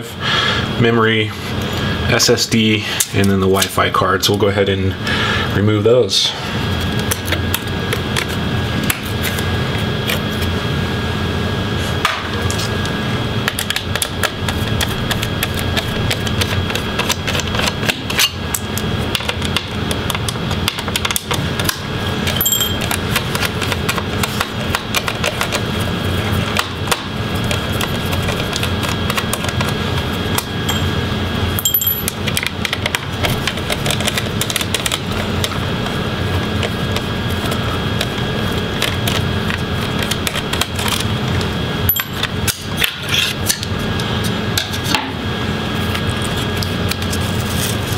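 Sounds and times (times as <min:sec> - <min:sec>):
steady hum: 0:00.0 - 0:47.9.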